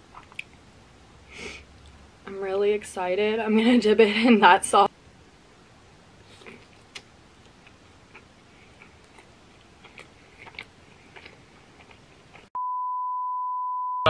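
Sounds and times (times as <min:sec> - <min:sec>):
wet chewing with mouth clicks: 0:06.2 - 0:12.5
steady test tone beep: 0:12.6 - 0:14.0.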